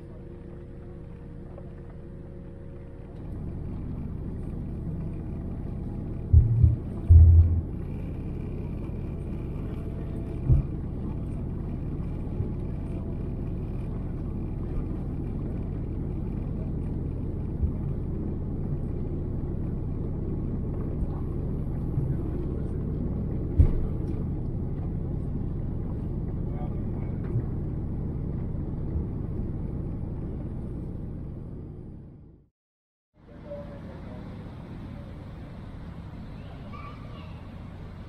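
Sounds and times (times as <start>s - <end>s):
jet cabin engine rumble: 0.0s - 32.5s
low thumps: 6.3s - 7.9s.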